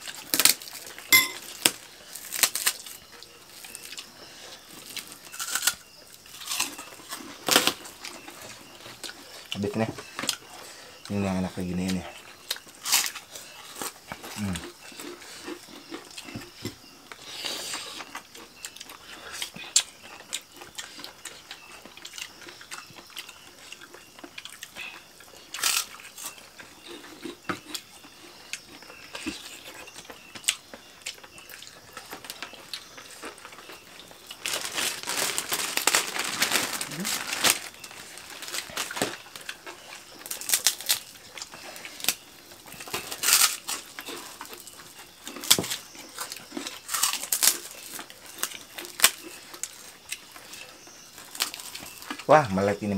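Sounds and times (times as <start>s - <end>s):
chewing and mouth noises: 12.1s - 37.2s, 37.9s - 52.3s
leaf rustling: 34.2s - 39.5s.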